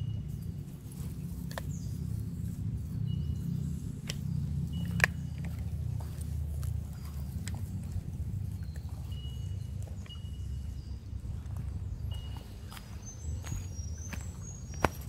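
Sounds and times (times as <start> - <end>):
low rumble: 0.0 - 15.0
sharp clicks: 4.0 - 5.7.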